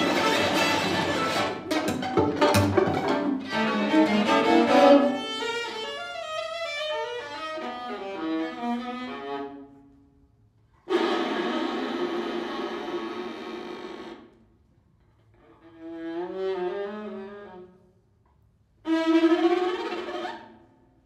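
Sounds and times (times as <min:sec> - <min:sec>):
string quartet playing: 0:00.0 - 0:09.7, 0:10.9 - 0:13.9.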